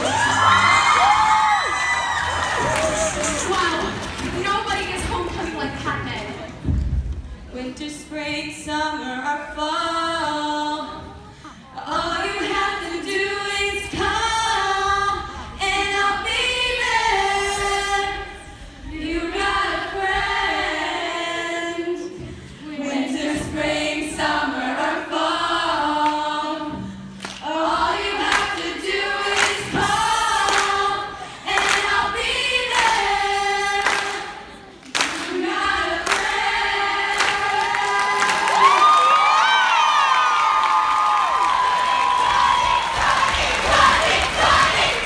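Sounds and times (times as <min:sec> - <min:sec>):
group of voices singing: 0:09.8 - 0:38.8, 0:42.0 - 0:45.0.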